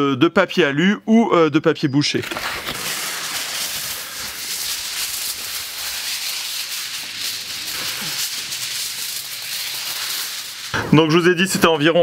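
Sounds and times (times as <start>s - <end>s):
aluminium foil crinkling: 2.2s - 10.8s.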